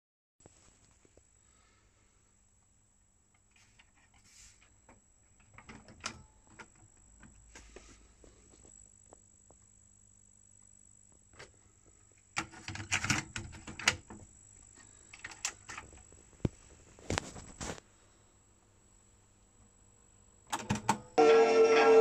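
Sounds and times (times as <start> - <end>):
cassette deck mechanical clicks: 20.5 - 21.1.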